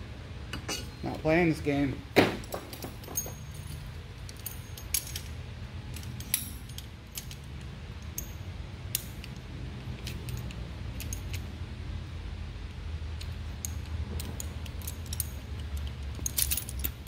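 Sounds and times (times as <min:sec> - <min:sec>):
low steady hum: 0:00.0 - 0:17.0
metallic clinks of hand tools: 0:02.6 - 0:05.3.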